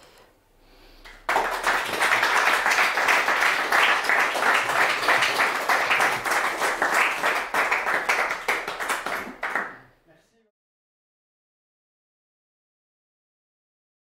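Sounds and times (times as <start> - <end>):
audience applauding: 1.1 - 9.9.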